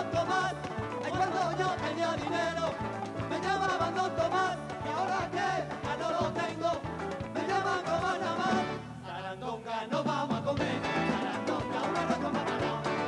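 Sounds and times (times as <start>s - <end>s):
electric guitar: 0.0s - 9.0s, 10.6s - 13.0s
acoustic guitar: 0.0s - 9.1s, 10.0s - 13.0s
drums: 0.0s - 9.1s, 9.8s - 13.0s
voices singing: 0.0s - 13.0s.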